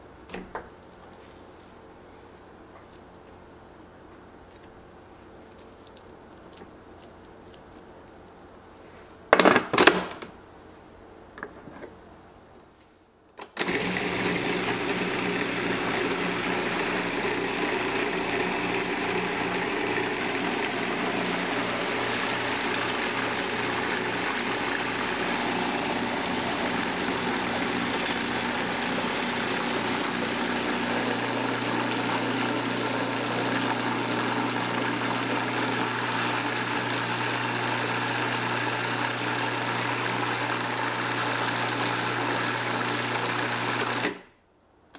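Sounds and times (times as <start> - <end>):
food processor running: 13.6 - 44.2.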